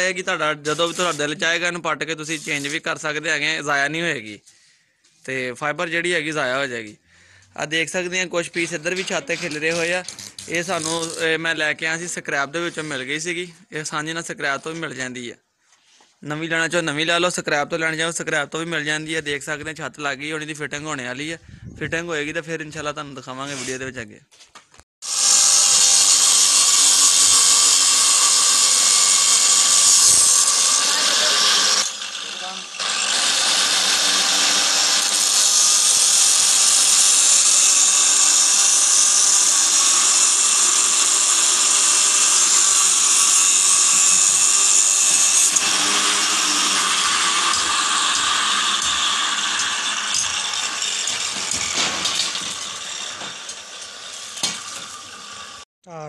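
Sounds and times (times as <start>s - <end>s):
angle grinder cutting steel: 0.0s - 1.6s, 2.2s - 2.9s, 8.6s - 11.5s, 25.0s - 55.7s.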